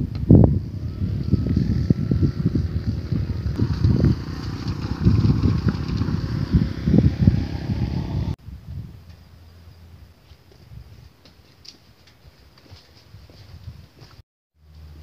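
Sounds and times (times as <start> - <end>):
wind buffeting microphone: 0.0 - 9.2
motorcycle riding past: 0.4 - 8.4.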